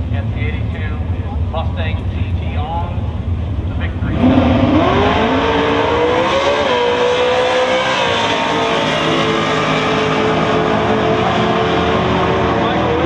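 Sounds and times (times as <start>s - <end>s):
drag cars accelerating hard: 3.0s - 13.0s.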